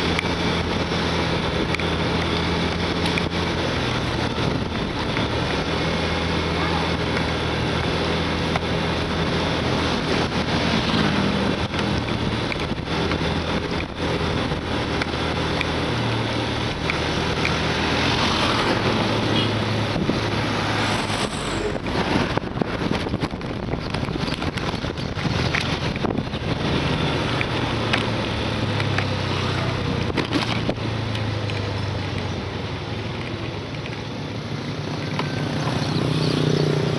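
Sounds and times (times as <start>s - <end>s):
wind rush on microphone: 16.8s - 27.8s.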